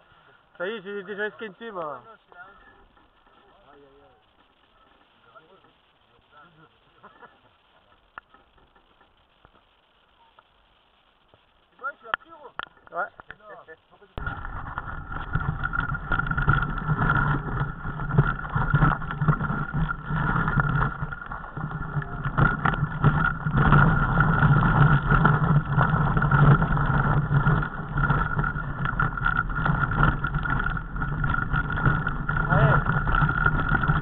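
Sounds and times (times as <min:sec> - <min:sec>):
mountain bike rattling over rocks: 0:00.6 - 0:05.8, 0:11.8 - 0:13.6, 0:14.2 - 0:34.0.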